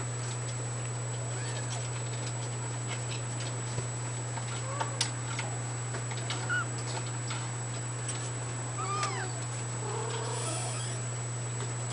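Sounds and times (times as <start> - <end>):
steady low hum: 0.0 - 11.9
kitten mewing: 8.8 - 11.1.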